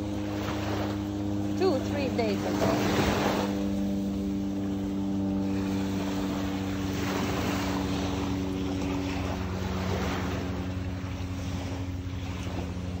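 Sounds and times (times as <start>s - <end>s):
engine droning: 0.0s - 13.0s.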